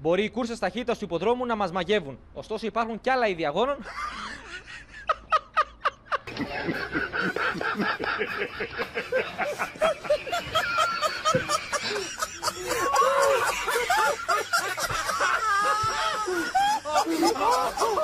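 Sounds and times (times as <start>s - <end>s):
crowd laughing: 3.8s - 18.0s
man laughing: 3.8s - 18.0s.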